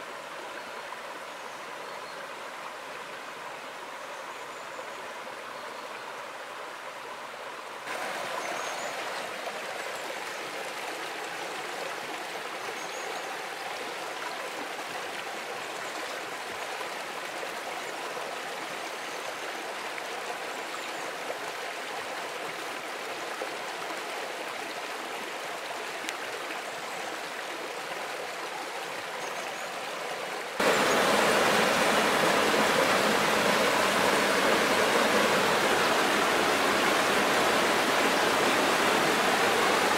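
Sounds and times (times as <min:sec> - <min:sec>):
stream running over stones: 0:00.0 - 0:39.9.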